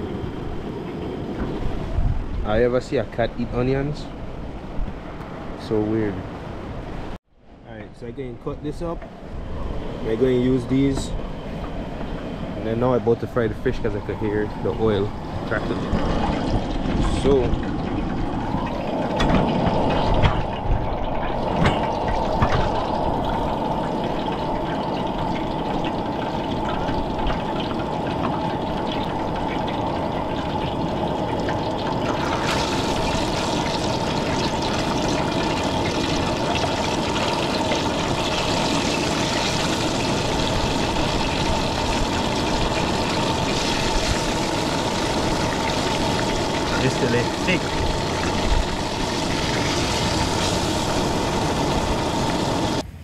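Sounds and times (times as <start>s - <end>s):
fish frying in hot oil: 13.7s - 52.8s.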